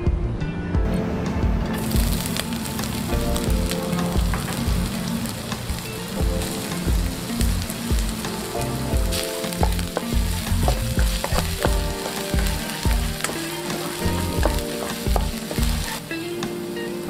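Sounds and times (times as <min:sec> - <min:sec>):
garlic sizzling in hot oil: 0:01.8 - 0:17.0
metal spatula scraping wok: 0:08.2 - 0:16.1.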